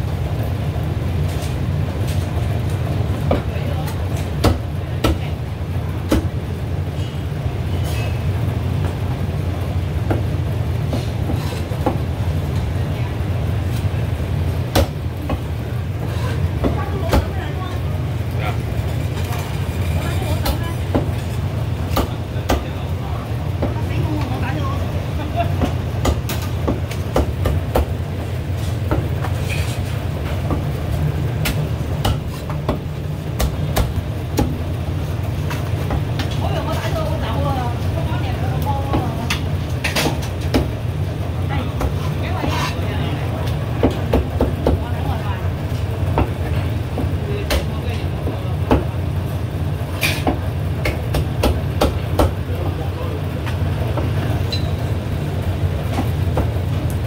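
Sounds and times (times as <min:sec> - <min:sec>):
cleaver chopping on wooden block: 0:31.4 - 0:32.8.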